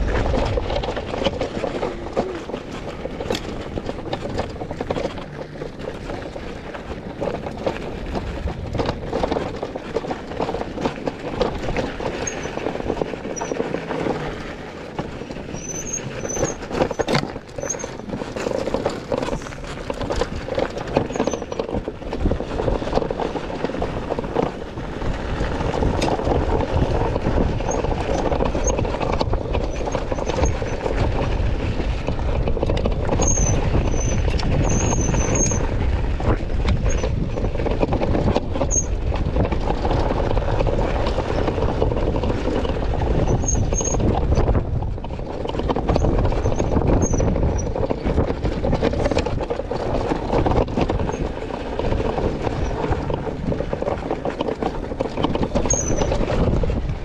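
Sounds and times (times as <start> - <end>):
bike rattling over rocky trail: 0.0 - 57.0
wind buffeting microphone: 0.0 - 57.0
high squeaks: 15.5 - 18.2, 55.6 - 56.1.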